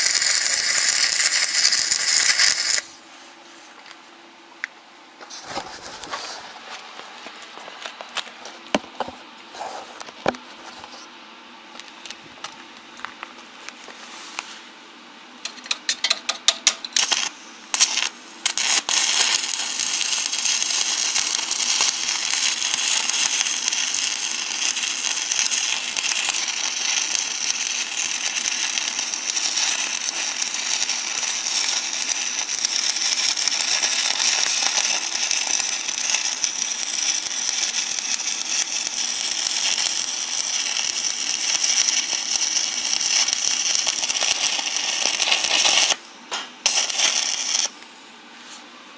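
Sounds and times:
arc welding crackling hiss: 0:00.0 - 0:03.0, 0:15.5 - 0:48.0.

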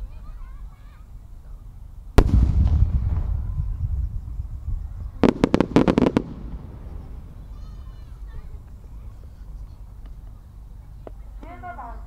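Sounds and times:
deep firework boom: 0:02.2 - 0:08.0
sharp firework bangs: 0:02.2 - 0:08.1.

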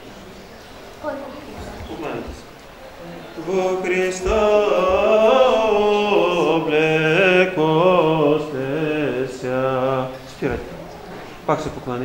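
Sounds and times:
man chanting a hymn: 0:03.3 - 0:10.7.

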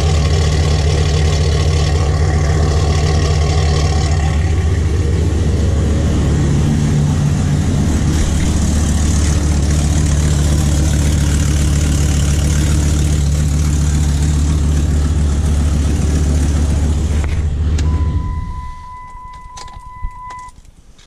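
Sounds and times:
car engine idling: 0:00.0 - 0:21.0
high electronic warning tone: 0:17.9 - 0:20.6.

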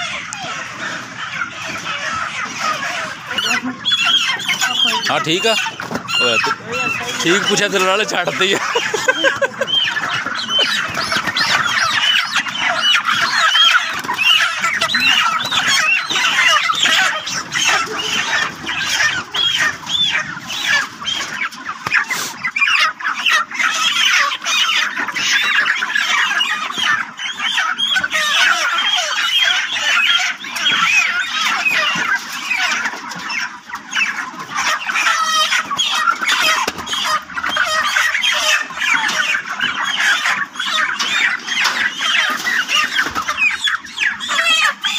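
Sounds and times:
chickens squawking and clucking: 0:00.0 - 0:44.9.

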